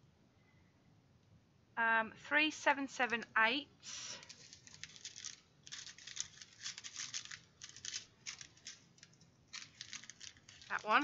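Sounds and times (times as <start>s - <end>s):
plastic bags crinkling: 3.9s - 11.0s.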